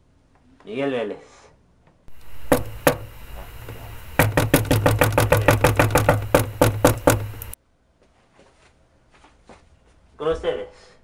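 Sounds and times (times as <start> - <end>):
fast knocks on hard surface: 2.1 - 7.6.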